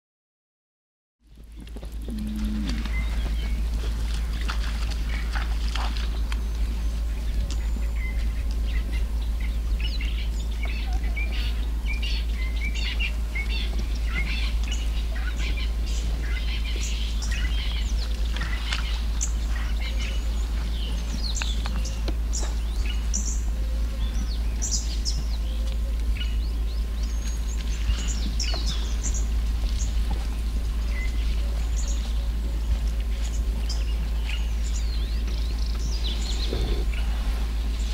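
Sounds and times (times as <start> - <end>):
steady low rumble: 1.2 - 37.9
birds chirping and calling: 1.8 - 37.9.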